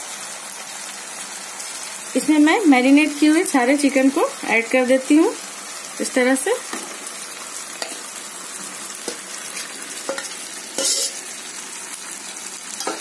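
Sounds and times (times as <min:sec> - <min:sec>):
food sizzling in a pan: 0:00.0 - 0:13.0
metal spoon scraping and knocking: 0:10.1 - 0:11.2.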